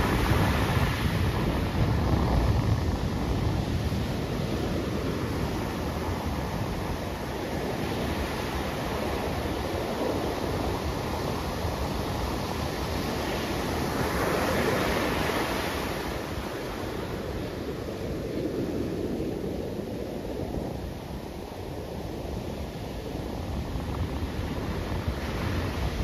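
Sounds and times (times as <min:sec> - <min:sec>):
ocean waves breaking: 0:00.0 - 0:20.0.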